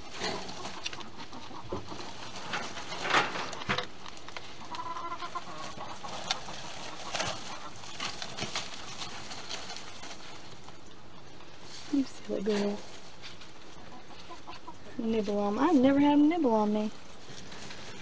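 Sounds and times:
chickens clucking: 0:00.0 - 0:18.0
small clicks and rustling: 0:00.1 - 0:15.9.

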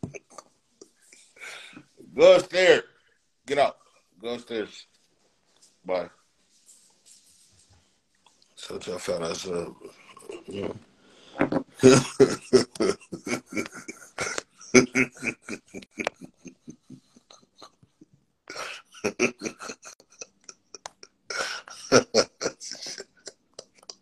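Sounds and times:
man laughing hard: 0:11.8 - 0:17.7, 0:18.5 - 0:23.8.

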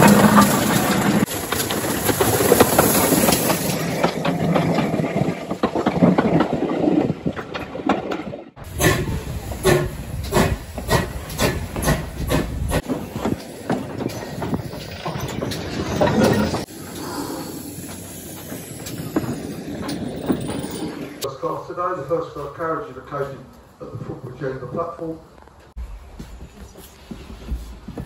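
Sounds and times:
heavy hiss of steam: 0:00.0 - 0:04.4, 0:08.6 - 0:15.2, 0:16.6 - 0:20.3
steam locomotive exhaust beats: 0:08.6 - 0:25.0, 0:25.8 - 0:28.0.

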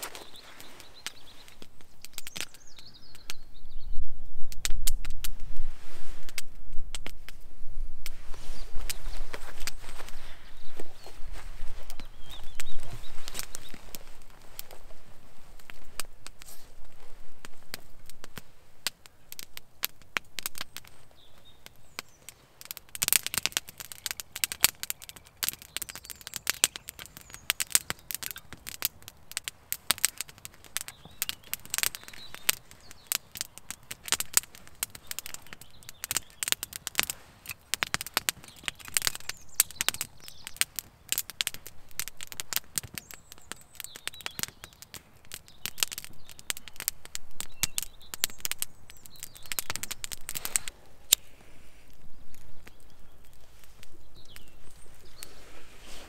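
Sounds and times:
wood crackling in a stove: 0:00.0 - 0:56.0.

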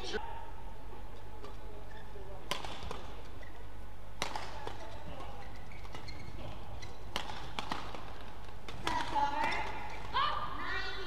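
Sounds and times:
rackets hitting shuttlecock: 0:02.4 - 0:10.2.

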